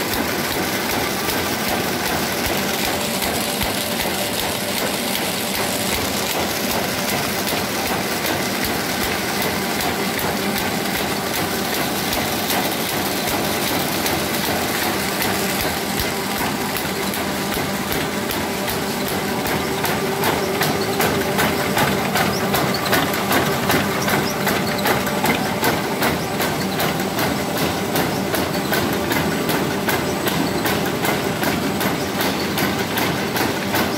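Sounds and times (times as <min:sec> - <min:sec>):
paper bag machine clattering: 0:00.0 - 0:33.9.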